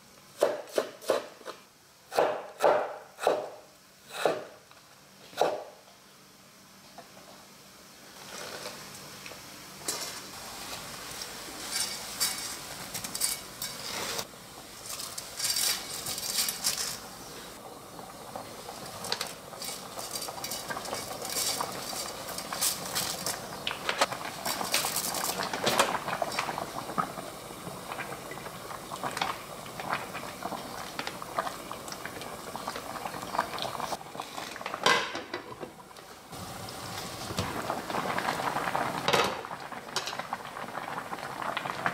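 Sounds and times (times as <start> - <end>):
water boiling in a pot: 7.0 - 41.9
utensils clinking on pot: 11.6 - 14.2, 19.1 - 23.4.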